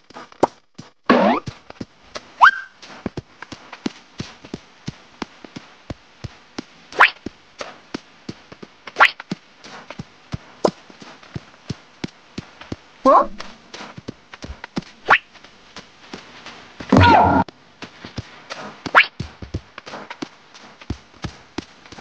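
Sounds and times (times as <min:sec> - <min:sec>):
rising whistle swoops: 0:02.4 - 0:02.7.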